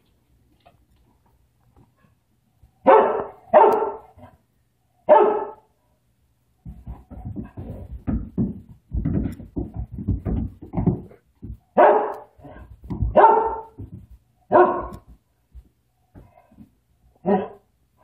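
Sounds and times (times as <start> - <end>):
dog barking: 2.8 - 4.4, 5.0 - 5.7, 11.8 - 13.8, 14.5 - 15.1, 17.2 - 17.7
cat thumping and scuffling on rug: 6.6 - 11.8, 12.4 - 16.8.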